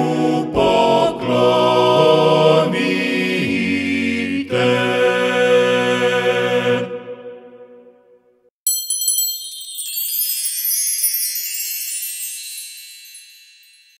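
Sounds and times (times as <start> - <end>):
male choir holding chord: 0.0 - 7.8
jingling bell and chime: 8.6 - 14.0.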